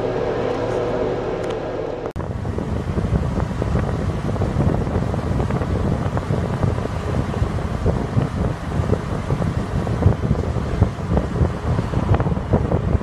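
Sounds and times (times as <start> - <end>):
rumble of moving vehicle: 0.0 - 13.0
trolleybus hum: 0.0 - 13.0
wind buffeting microphone: 0.0 - 13.0.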